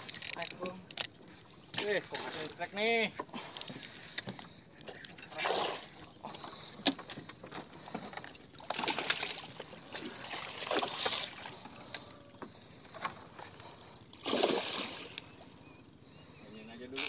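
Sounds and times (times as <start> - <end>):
fish splashing in water: 5.3 - 6.9, 8.6 - 11.7, 14.2 - 15.4.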